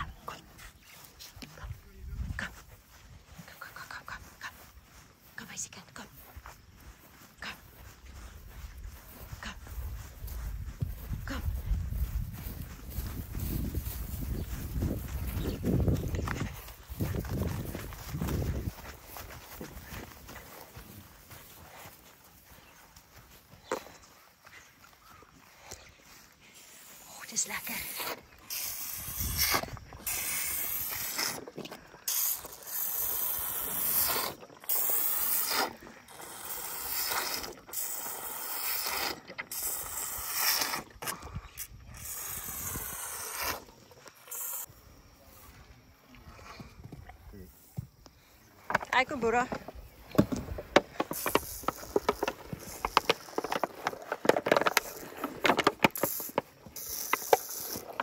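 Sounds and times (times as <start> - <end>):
short hissing bursts: 27.6 - 31.4, 32.1 - 40.8, 56.0 - 58.0
elephant slurping from bottle: 27.7 - 44.7, 51.0 - 58.0.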